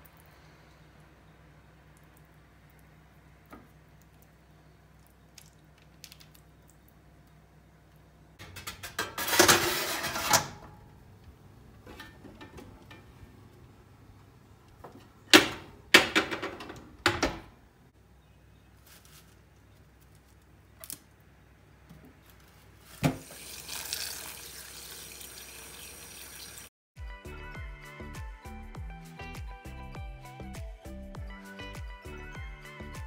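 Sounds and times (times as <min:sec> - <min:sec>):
metal baking tray scraping: 0:08.4 - 0:10.7.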